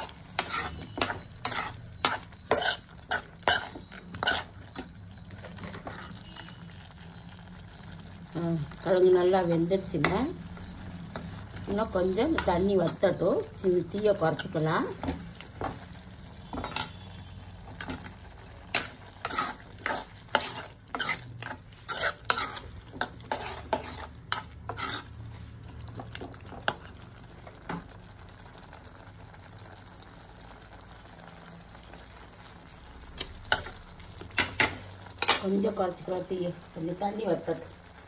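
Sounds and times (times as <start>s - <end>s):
spoon scraping a pan: 0.0s - 6.6s, 11.1s - 26.9s, 33.2s - 35.7s
faint simmering: 0.0s - 38.0s.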